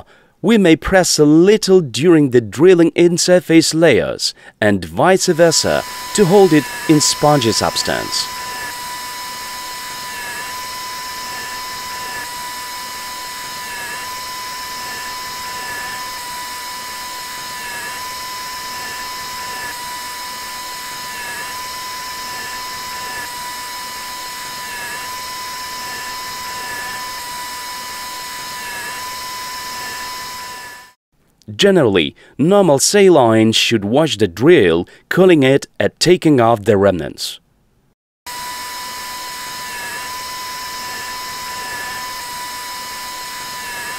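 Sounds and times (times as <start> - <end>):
surgical drill whining: 5.1 - 31.0, 38.3 - 43.9.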